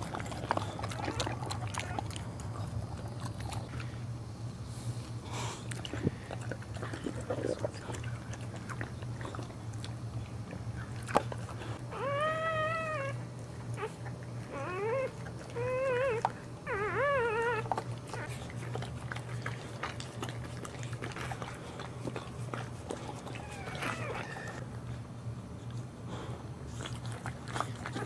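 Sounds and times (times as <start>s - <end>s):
puppy mewing cries: 11.8s - 18.4s, 23.2s - 24.6s.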